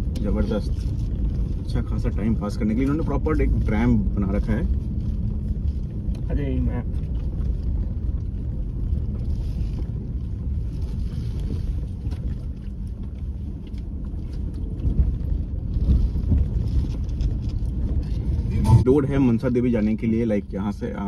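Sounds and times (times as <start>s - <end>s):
tyres rumbling on gravel: 0.0s - 21.0s
wind on microphone: 4.5s - 19.4s.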